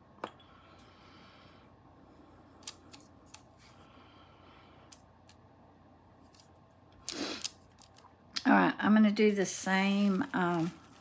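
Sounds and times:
soft scratching: 9.3s - 11.0s.

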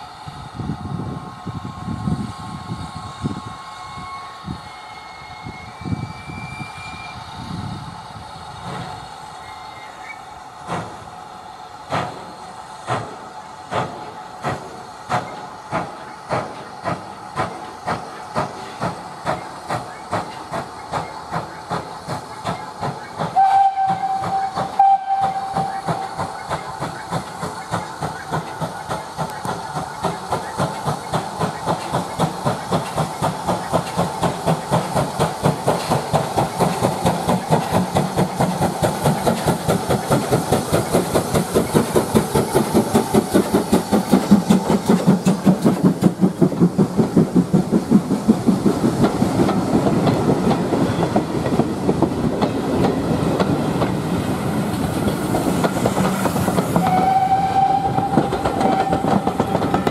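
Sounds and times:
steam hissing: 0.0s - 59.9s
steam locomotive exhaust beats: 0.0s - 59.9s
steam whistle blast: 3.8s - 7.3s, 23.4s - 26.2s, 56.8s - 59.7s.

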